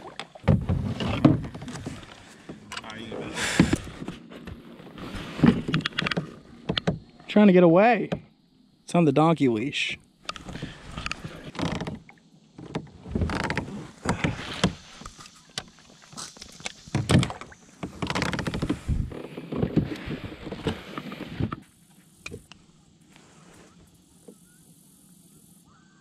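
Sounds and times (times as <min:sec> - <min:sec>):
knocks and bumps on plastic kayak: 0:00.0 - 0:02.7, 0:16.9 - 0:21.6.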